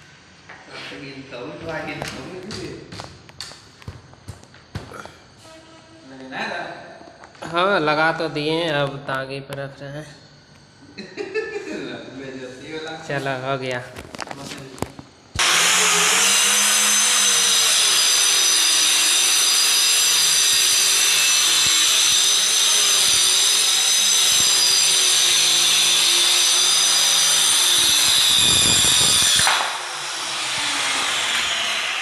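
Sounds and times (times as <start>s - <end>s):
electric saw cutting plywood: 15.4s - 32.0s.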